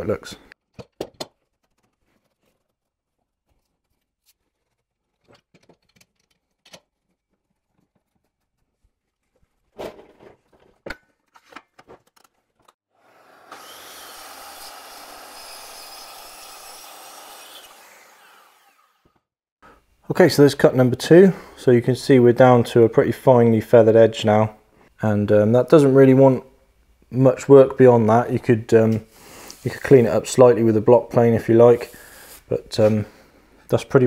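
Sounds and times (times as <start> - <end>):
knocks and clicks of wood and clamp: 0.7 - 1.5
circular saw cutting plywood: 13.0 - 19.3.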